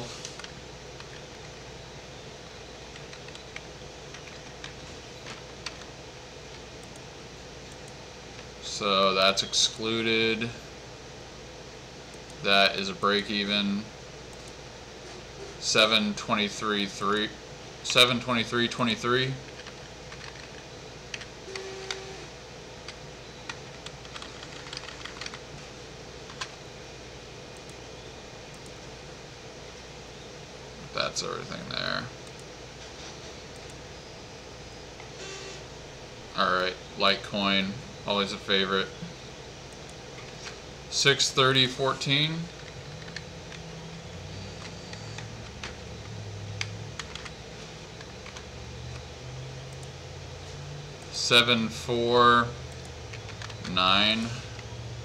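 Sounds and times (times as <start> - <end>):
faint low hum: 0.0 - 55.0
computer keyboard typing: 2.9 - 5.9, 19.4 - 22.1, 22.8 - 25.4, 42.5 - 43.6, 44.4 - 49.0, 52.7 - 54.1.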